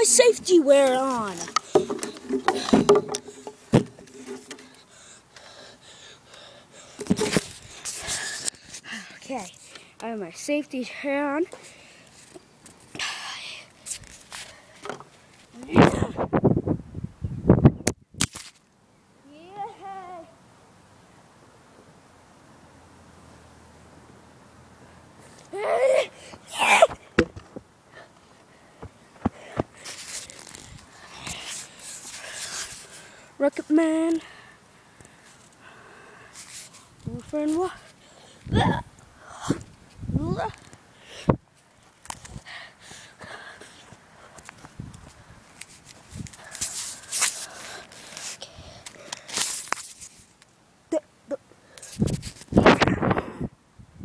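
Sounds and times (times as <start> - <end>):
breathy hiss: 1.6 - 10.0, 34.1 - 37.0
wheezy breath: 4.6 - 10.0
boy groaning: 25.5 - 27.0, 38.5 - 39.6
rustling: 29.1 - 33.2, 36.3 - 38.0, 43.8 - 50.5.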